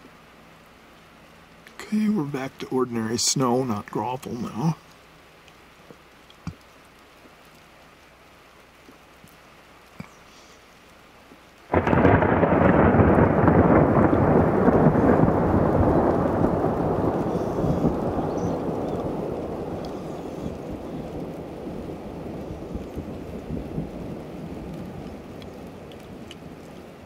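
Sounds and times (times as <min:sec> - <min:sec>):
faint ticks: 0:04.8 - 0:12.0, 0:17.8 - 0:21.4, 0:24.7 - 0:26.9
thunderclap rumbling: 0:11.7 - 0:27.0.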